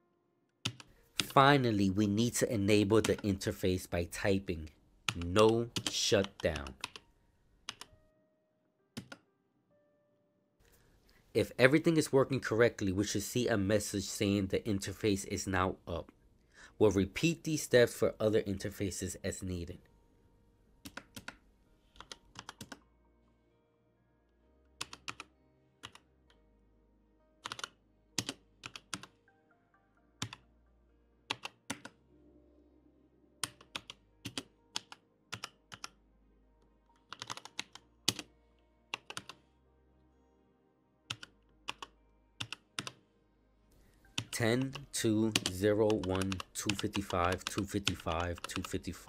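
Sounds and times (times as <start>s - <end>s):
quiet background music: 0.0s - 49.0s
computer keyboard clicking: 0.6s - 1.4s, 5.1s - 7.0s, 7.7s - 7.9s, 9.0s - 9.2s, 20.8s - 21.4s, 22.0s - 22.8s, 24.8s - 26.0s, 27.4s - 29.2s, 30.2s - 30.4s, 31.3s - 32.0s, 33.4s - 36.0s, 37.0s - 38.3s, 39.0s - 39.4s, 41.1s - 43.0s, 44.2s - 48.9s.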